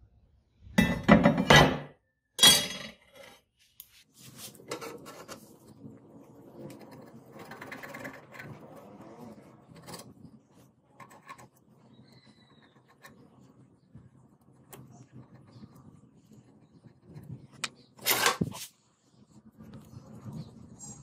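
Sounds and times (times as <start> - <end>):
pen scratching on metal: 4.3 - 18.7.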